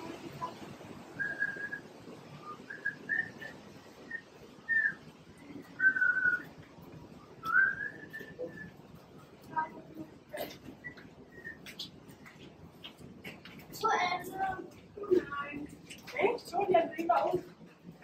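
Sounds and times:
person whistling: 7.5 - 8.7.

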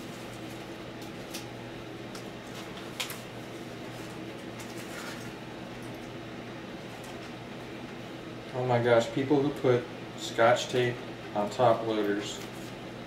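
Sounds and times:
paper rustle: 3.9 - 5.3.

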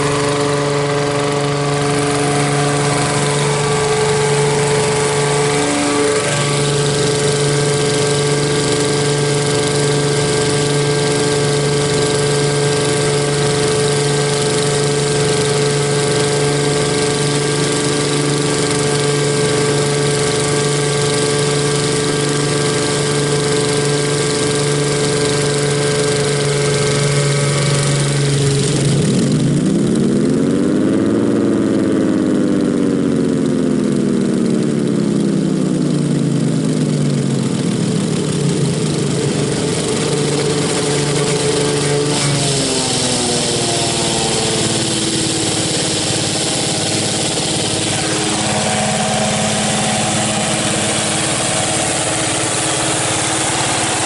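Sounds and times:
siren mechanical hum: 39.0 - 54.0.

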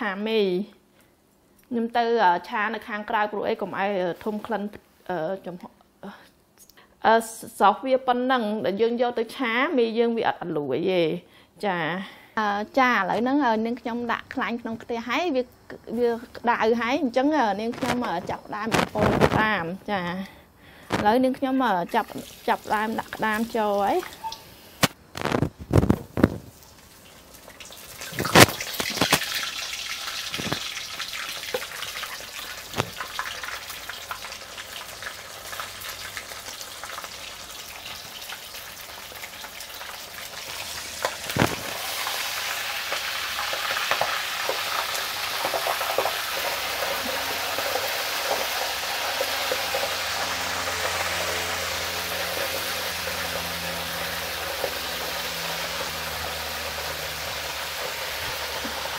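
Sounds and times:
food deep-frying in hot oil: 15.8 - 19.6, 20.9 - 58.9.

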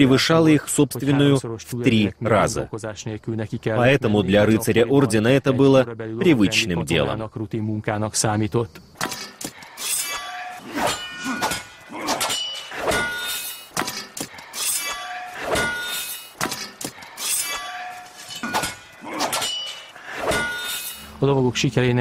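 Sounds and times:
metal clanging on metal: 9.0 - 21.2.

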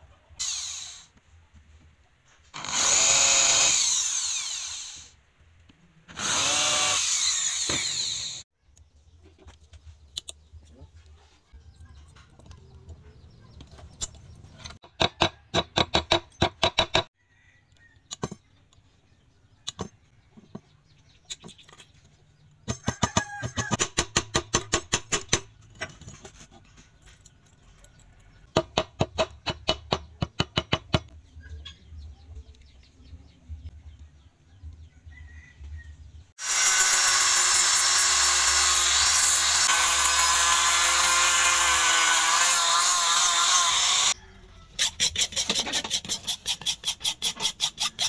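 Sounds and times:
angle grinder sanding wood: 36.4 - 44.2.

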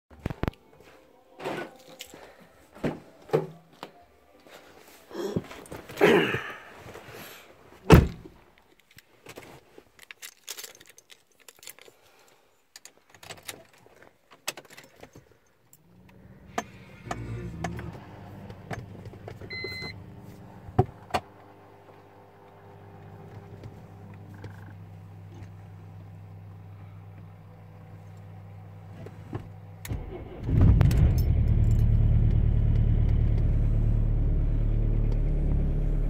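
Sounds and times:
heavy thunk: 7.9 - 8.3
keys jangling: 10.0 - 15.2
short beep: 19.5 - 20.0.

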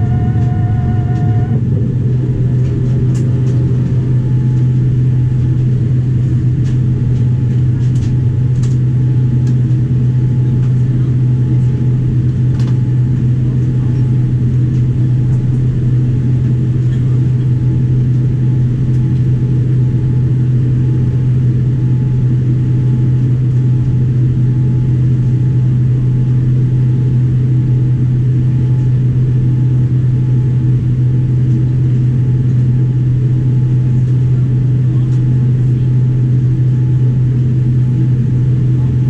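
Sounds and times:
aircraft cabin low drone: 0.0 - 39.0.

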